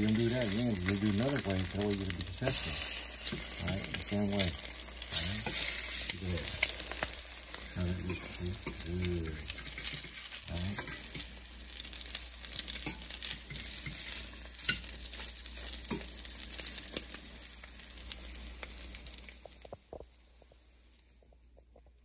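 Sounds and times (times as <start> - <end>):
bread sizzling in hot oil: 0.0 - 22.0
metal fork scraping a pan: 2.4 - 11.3, 12.5 - 16.1.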